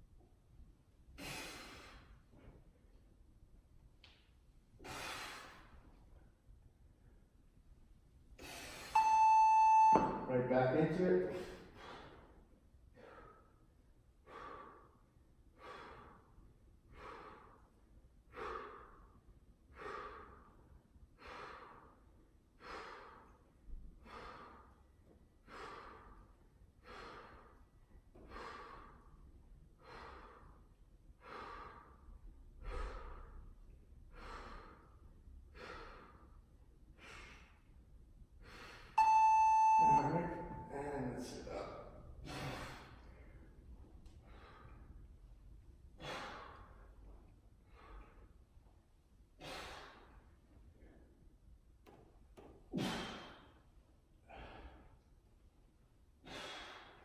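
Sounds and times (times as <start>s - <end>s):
man breathing hard: 1.2s - 2.6s, 4.8s - 6.0s, 8.4s - 9.0s, 11.3s - 37.8s, 38.4s - 39.0s, 41.8s - 45.2s, 45.9s - 48.4s, 49.4s - 51.2s, 52.7s - 55.1s, 56.2s - 57.0s.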